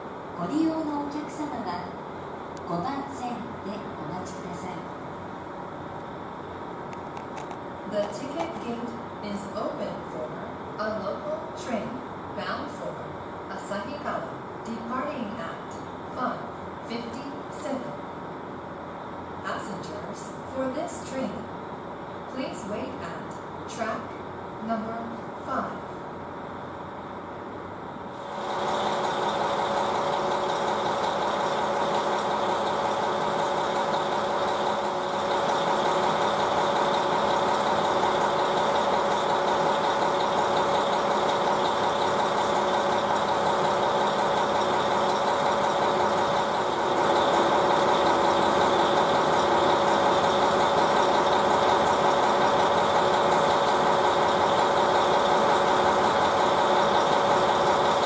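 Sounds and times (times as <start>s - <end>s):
diesel railcar engine idling: 26.2s - 58.0s.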